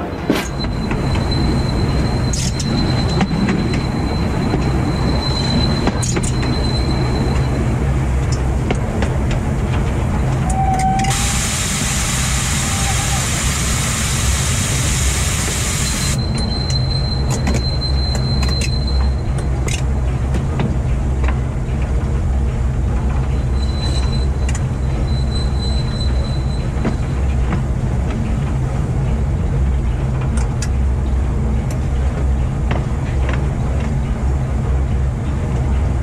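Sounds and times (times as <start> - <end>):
high wheel squeal: 0.0 - 8.2, 10.2 - 19.2, 23.4 - 27.2
train rumbling along track: 0.0 - 36.0
wheels clicking on rails: 0.0 - 36.0
loud hiss: 11.1 - 16.2.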